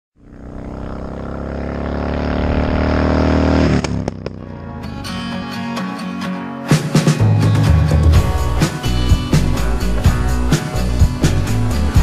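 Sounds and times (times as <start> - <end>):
motorcycle engine passing: 0.2 - 5.3
music: 4.4 - 12.0.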